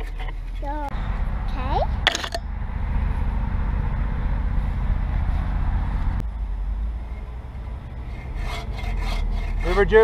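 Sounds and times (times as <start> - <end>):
low humming rumble: 0.0 - 9.6
bow saw cutting log: 8.0 - 10.0.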